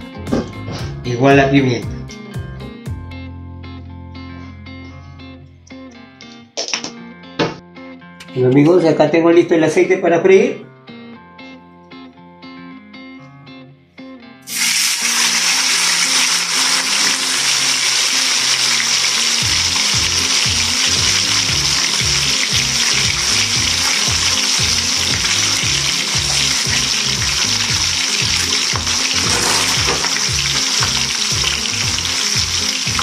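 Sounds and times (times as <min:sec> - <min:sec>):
background music: 0:00.0 - 0:33.0
fish sizzling in hot oil: 0:14.5 - 0:33.0.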